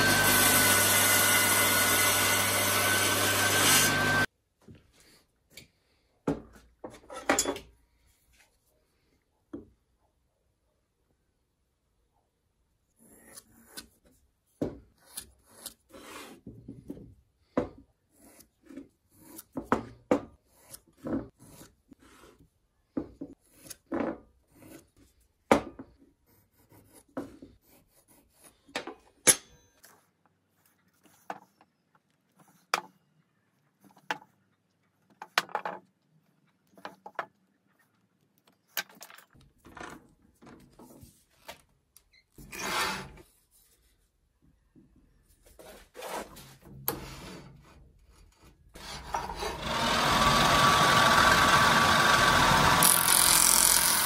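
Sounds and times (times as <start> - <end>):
pencil scratching on wood: 18.0 - 22.5, 23.3 - 25.3, 26.2 - 28.7.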